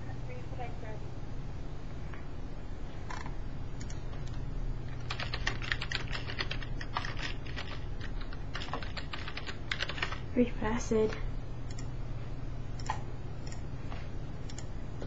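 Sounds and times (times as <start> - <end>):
steady low hum: 0.0 - 15.0
keyboard typing: 3.1 - 10.3.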